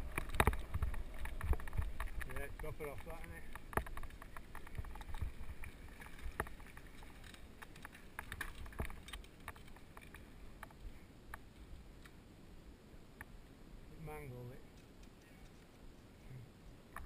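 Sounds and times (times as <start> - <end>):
tyres crunching over gravel: 0.0 - 10.2
bike clicks and rattles: 0.0 - 10.8.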